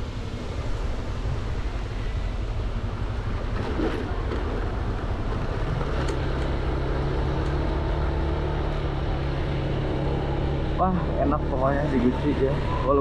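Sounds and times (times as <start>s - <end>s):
road rumble: 0.0s - 13.0s
wind: 0.0s - 13.0s.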